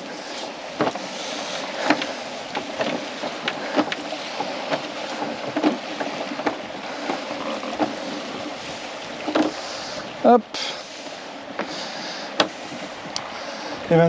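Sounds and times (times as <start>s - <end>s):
wind and water rushing along hull: 0.0s - 14.0s
light knocks and rattles: 0.8s - 1.1s, 1.8s - 8.0s.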